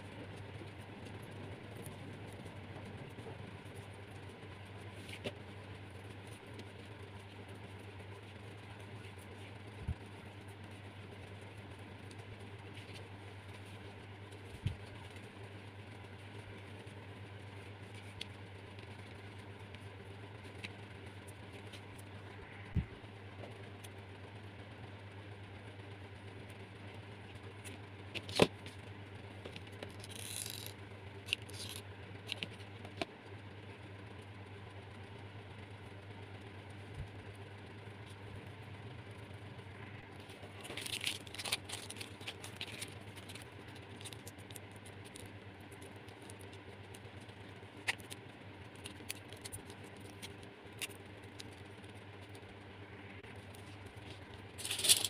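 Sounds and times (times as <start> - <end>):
low steady hum: 0.0 - 55.0
craft materials clicking and rustling: 29.4 - 33.1, 40.2 - 51.6, 53.5 - 55.0.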